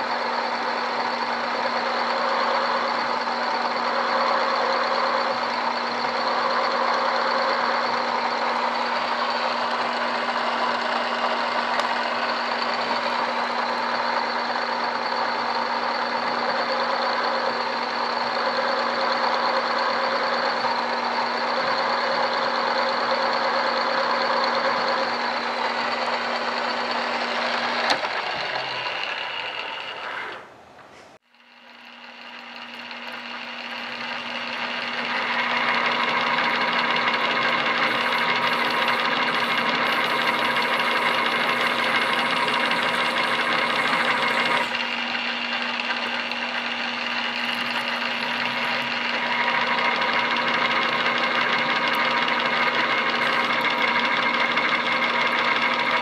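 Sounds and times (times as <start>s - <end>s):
drill press humming: 0.0s - 56.0s
drill bit ringing on metal: 31.3s - 56.0s.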